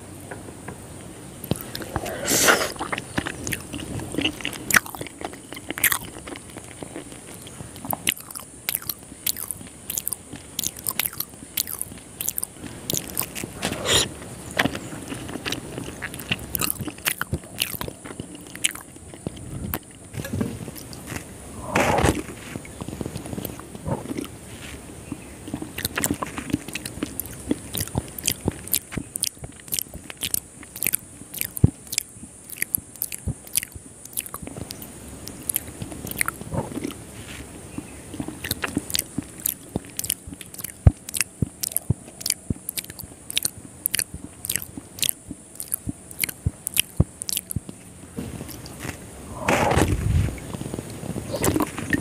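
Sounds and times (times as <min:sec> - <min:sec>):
sharp mouth clicks: 0:01.4 - 0:06.7, 0:07.3 - 0:14.1, 0:15.5 - 0:20.1, 0:25.1 - 0:37.0, 0:38.2 - 0:47.8
wet chewing and smacking: 0:01.4 - 0:52.0.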